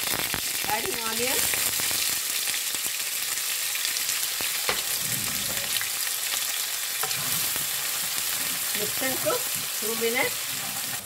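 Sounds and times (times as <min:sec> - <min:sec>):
onion sizzling in hot oil: 0:00.0 - 0:11.0
sharp pops of frying: 0:00.0 - 0:11.0.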